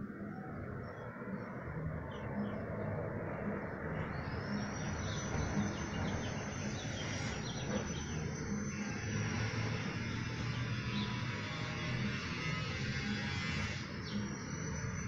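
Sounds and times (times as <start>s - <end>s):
small birds chirping: 0.0s - 15.0s
thin high whine: 6.5s - 15.0s.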